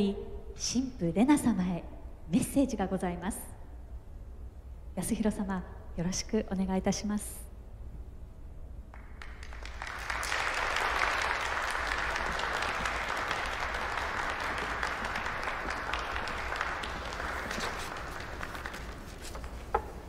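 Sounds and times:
crowd applauding: 0:09.0 - 0:19.8.

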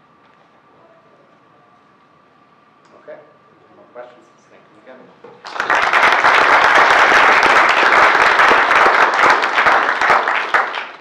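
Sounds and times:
audience applauding: 0:05.4 - 0:11.0.

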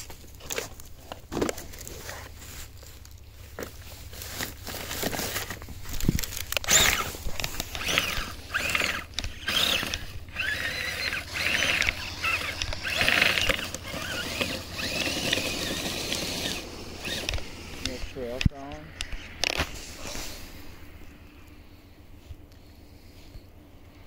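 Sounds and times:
tracks clattering and grinding: 0:00.0 - 0:20.4
electric motor whining: 0:04.4 - 0:20.4.

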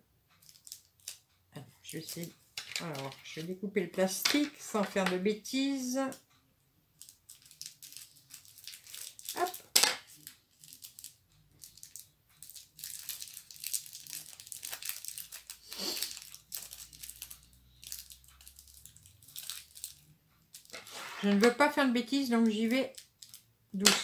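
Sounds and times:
plastic packaging crinkling: 0:00.4 - 0:01.2, 0:07.0 - 0:24.0.

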